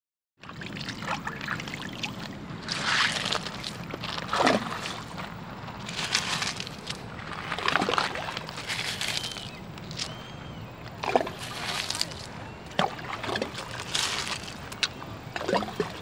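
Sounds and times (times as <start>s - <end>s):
loud water splashes: 0.4s - 6.7s, 11.0s - 14.7s
water lapping on pebbly shore: 0.4s - 16.0s.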